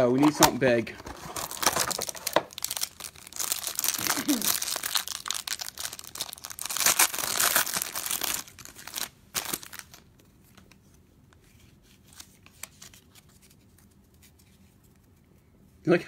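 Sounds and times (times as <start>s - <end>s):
foil wrapper crinkling and tearing: 1.2s - 10.7s.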